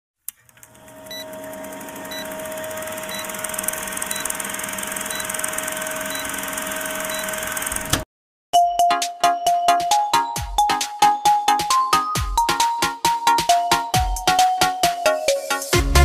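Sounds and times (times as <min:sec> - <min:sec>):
film projector clatter and hum: 0:00.3 - 0:08.0.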